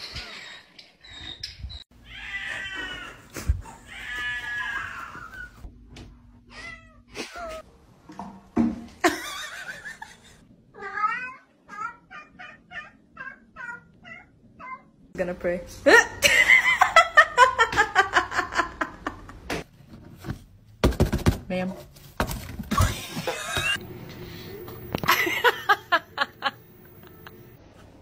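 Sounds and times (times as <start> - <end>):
cats meowing: 2.1 - 3.2, 10.8 - 14.9.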